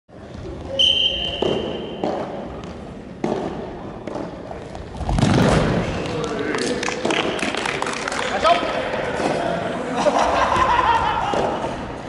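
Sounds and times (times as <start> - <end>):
ball kicks in gym hall: 0.2 - 7.4
referee's whistle blast: 0.8 - 2.0.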